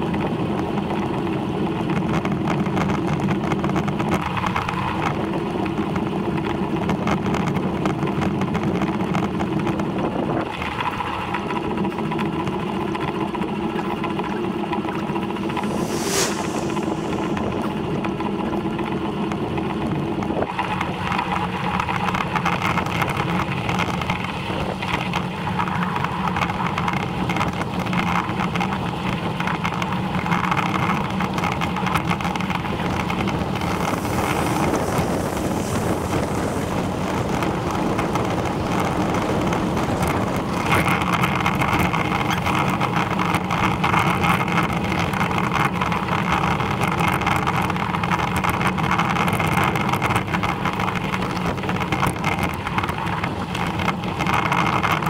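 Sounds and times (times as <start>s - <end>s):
bicycle tyre rumble on tarmac: 0.0s - 55.0s
wind buffeting the microphone: 14.8s - 55.0s.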